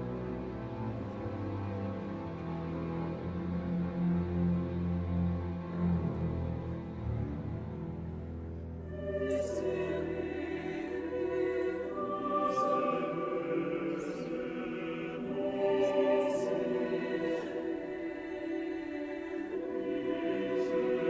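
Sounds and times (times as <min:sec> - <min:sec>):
mixed choir singing: 0:08.9 - 0:21.0.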